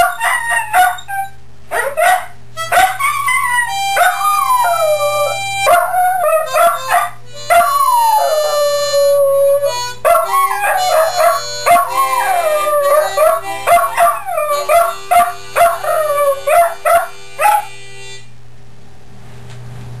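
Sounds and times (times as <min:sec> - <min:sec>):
dog howling: 0:00.0 - 0:17.7
blues harmonica: 0:02.6 - 0:18.4.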